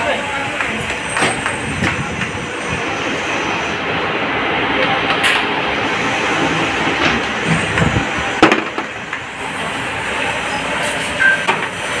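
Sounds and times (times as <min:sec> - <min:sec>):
workshop machinery running: 0:00.0 - 0:12.0.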